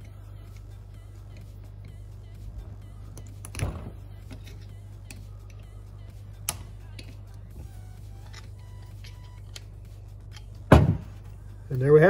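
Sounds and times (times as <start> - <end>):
steady low hum: 0.0 - 12.0
metal clip snapping: 3.2 - 5.7, 6.4 - 7.4.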